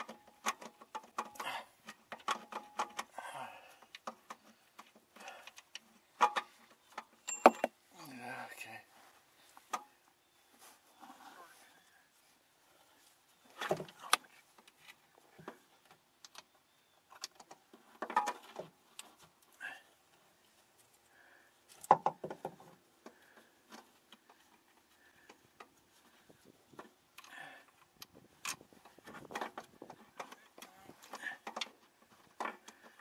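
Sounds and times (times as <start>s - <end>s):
tools clinking against metal: 7.2s - 7.8s.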